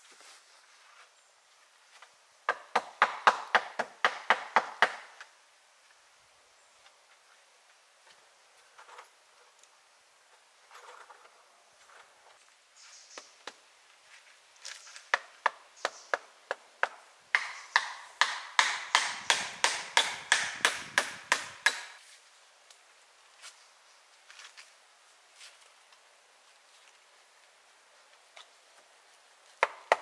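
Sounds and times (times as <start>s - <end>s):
hand tool striking wood: 2.5s - 5.3s, 15.1s - 22.0s, 29.6s - 30.0s.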